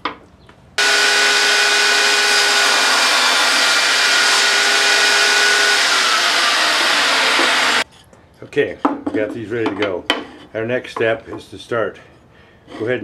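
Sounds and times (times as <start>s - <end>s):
table saw whining: 0.8s - 7.8s.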